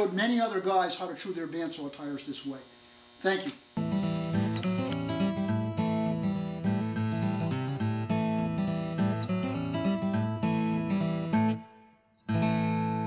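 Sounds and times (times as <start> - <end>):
acoustic guitar strumming: 3.8 - 13.0.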